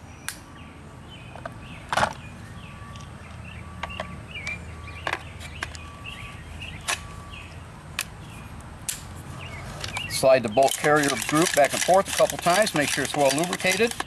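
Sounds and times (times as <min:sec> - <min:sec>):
metallic rifle parts clicking: 0:09.8 - 0:14.0.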